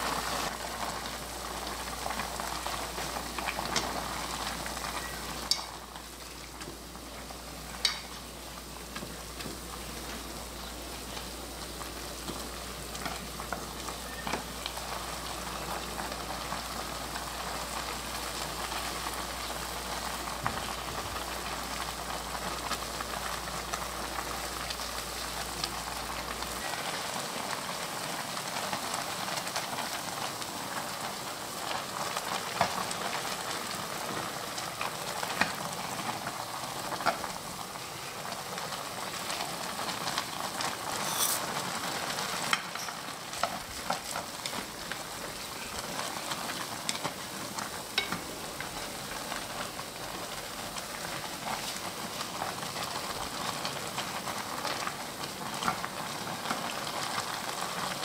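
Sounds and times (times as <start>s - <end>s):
water boiling and bubbling: 0.0s - 58.0s
chopsticks clicking against pan: 5.5s - 5.7s, 7.8s - 8.1s
dried flakes poured rustle: 40.0s - 42.1s.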